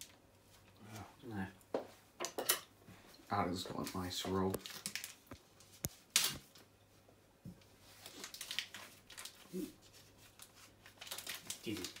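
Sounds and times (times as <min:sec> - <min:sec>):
packaging rustling: 0:03.8 - 0:06.6, 0:07.9 - 0:12.0.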